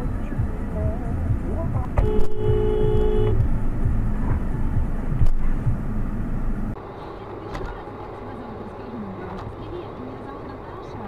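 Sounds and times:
car road and engine rumble: 0.0 - 11.0
two-note car horn: 2.0 - 3.4.

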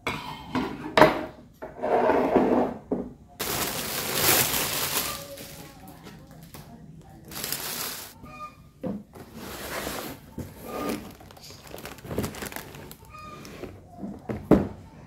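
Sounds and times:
cloth and cardboard rustling: 3.4 - 6.4, 7.3 - 8.2, 9.3 - 13.0
plastic wrapping crinkling: 3.4 - 8.2, 10.4 - 13.6.

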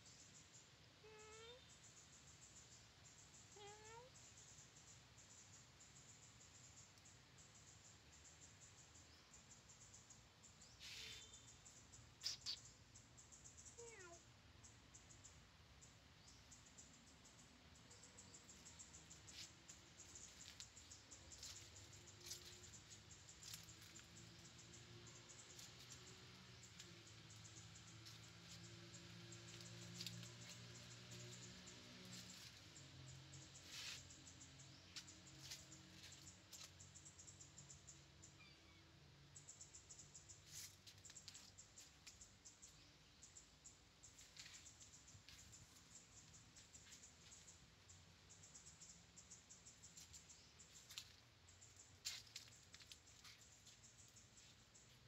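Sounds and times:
faint bird chirp: 0.0 - 55.0
kitten paws on dry leaves: 18.4 - 24.6, 25.4 - 27.1, 28.0 - 32.8, 33.6 - 34.2, 34.9 - 36.7, 40.4 - 42.2, 49.8 - 55.0.

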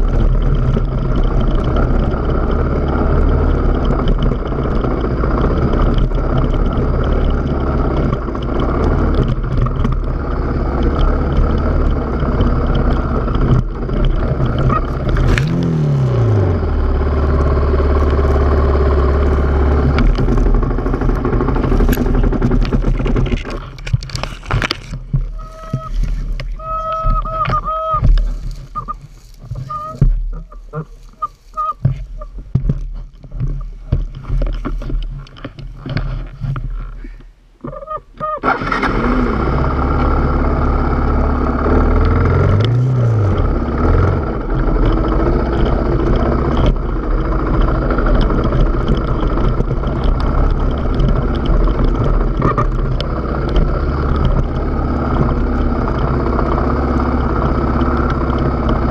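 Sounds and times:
rustling through bracken: 0.0 - 38.8
off-road vehicle engine running: 0.0 - 58.9.

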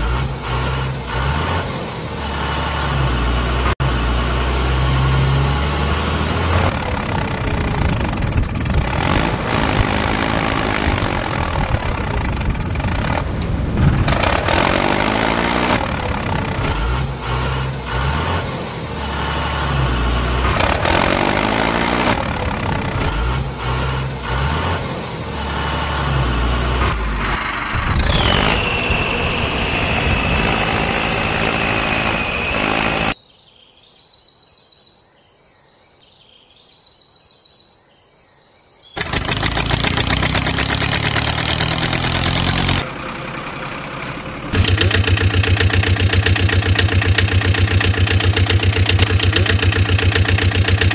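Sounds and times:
engine running and revving: 0.0 - 33.2, 39.0 - 50.9
engine humming with fast beat: 6.2 - 24.7, 39.0 - 50.9
high whistle-like tone: 28.2 - 30.5.

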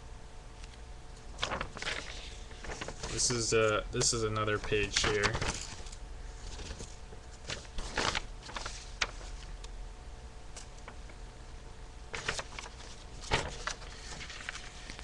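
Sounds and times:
paper rustling: 1.3 - 9.6, 12.1 - 15.0.

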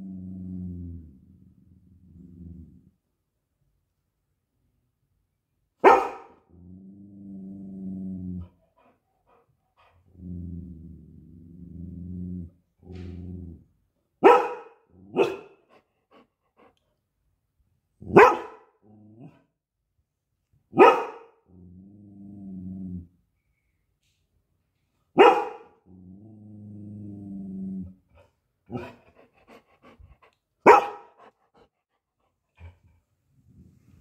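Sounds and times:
dog growling low: 0.0 - 3.0, 6.4 - 13.8, 18.8 - 19.6, 21.4 - 23.3, 25.8 - 30.4
dog barking sharply: 5.8 - 6.4, 14.2 - 15.5, 18.2 - 18.7, 20.8 - 21.3, 25.2 - 25.7, 30.7 - 31.1.

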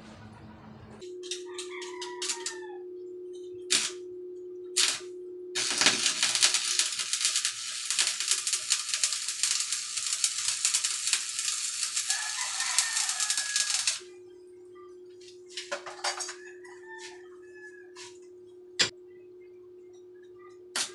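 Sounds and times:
welding arc crackling: 3.7 - 4.0, 4.8 - 14.0.

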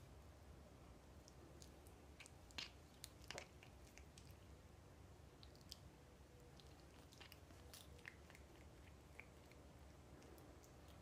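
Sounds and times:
cat chewing crunching clicks: 1.2 - 4.4, 6.6 - 11.0.

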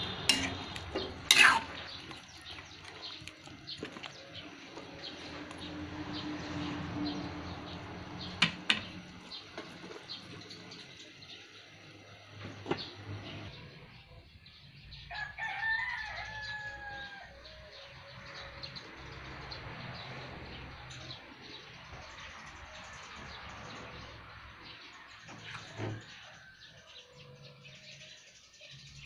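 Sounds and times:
metal spatula stirring in a wok: 0.0 - 3.0
spatula clinking against pan: 0.3 - 1.8
rooster crowing: 15.0 - 17.7.

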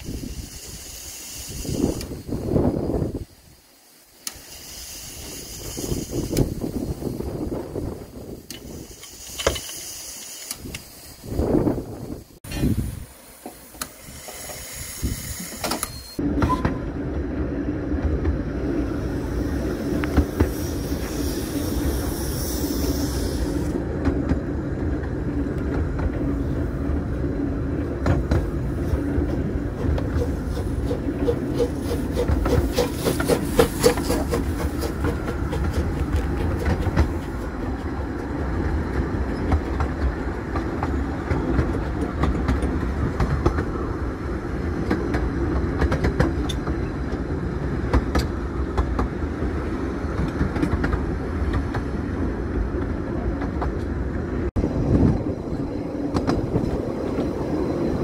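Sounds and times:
steam hissing: 0.0 - 16.2, 18.6 - 48.6
train rumbling: 0.0 - 58.0
wheels clickety-clack over rail joints: 5.2 - 12.8, 13.4 - 58.0.

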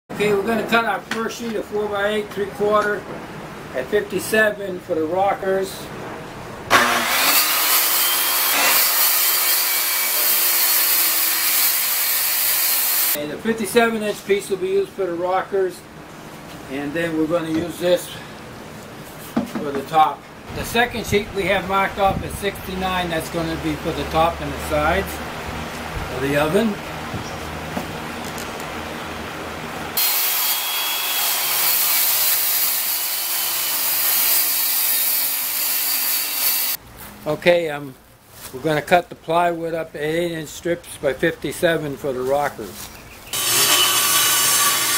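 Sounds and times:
circular saw cutting plywood: 6.7 - 13.2, 30.0 - 36.8, 43.4 - 44.9.

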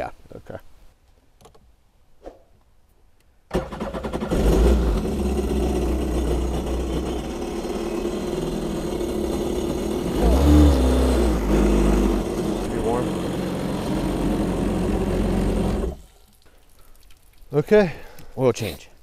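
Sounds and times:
jet ski engine starting and idling: 3.5 - 16.1.

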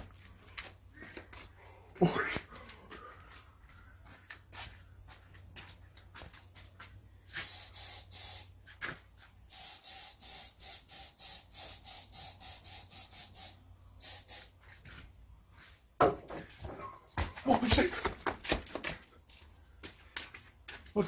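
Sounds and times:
spray can hissing in bursts: 7.3 - 14.6.

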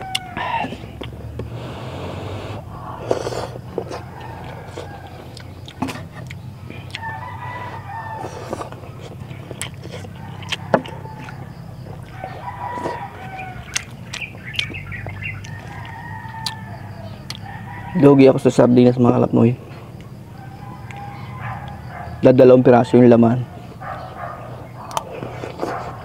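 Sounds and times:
rooster crowing: 0.0 - 0.8, 2.6 - 14.0, 14.7 - 19.3, 20.1 - 26.0
eating clicks and spoon: 24.9 - 25.1.

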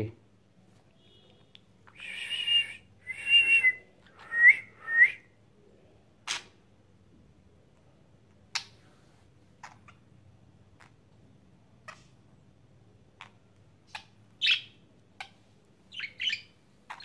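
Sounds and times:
person whistling: 2.0 - 5.2.

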